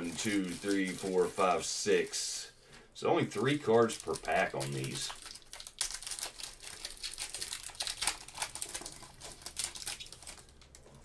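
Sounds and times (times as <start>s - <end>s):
foil wrapper crinkling: 0.0s - 2.1s, 3.4s - 11.0s.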